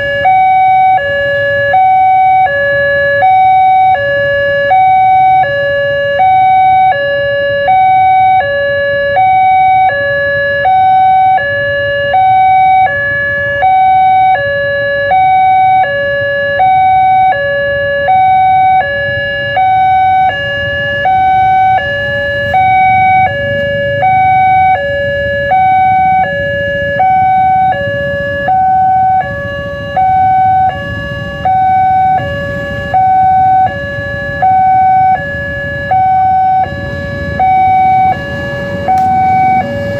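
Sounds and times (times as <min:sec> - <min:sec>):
level crossing two-tone alarm: 0:00.0 - 0:39.9
low engine rumble: 0:18.0 - 0:39.9.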